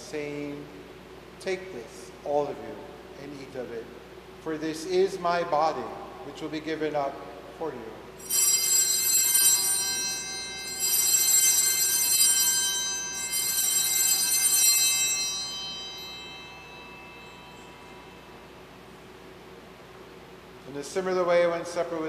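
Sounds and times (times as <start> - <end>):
altar bells ringing: 8.2 - 19.7.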